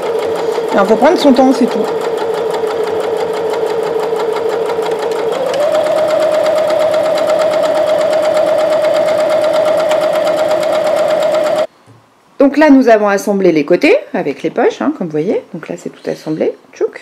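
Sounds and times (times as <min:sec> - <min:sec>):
sewing machine stitching: 0:00.0 - 0:11.7.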